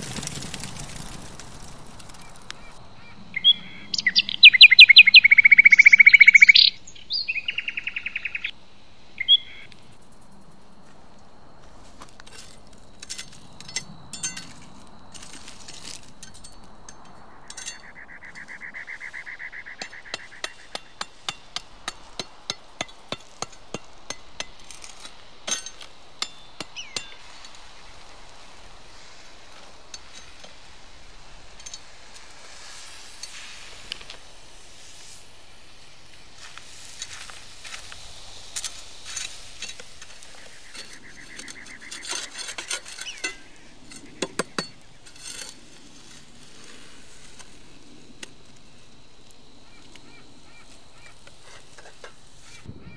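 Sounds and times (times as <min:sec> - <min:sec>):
clinks: 0:12.2 - 0:18.0, 0:19.8 - 0:27.6, 0:31.5 - 0:32.0, 0:38.6 - 0:45.6.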